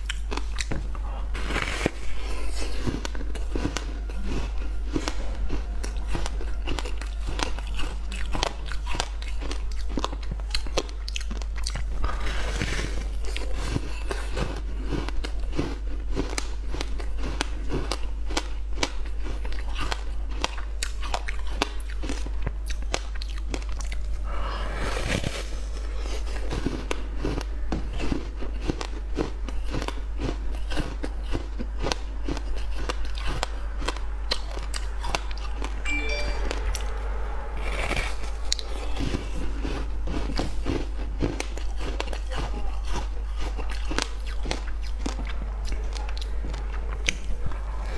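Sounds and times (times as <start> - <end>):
steady low hum: 0.0 - 12.3, 30.4 - 42.3.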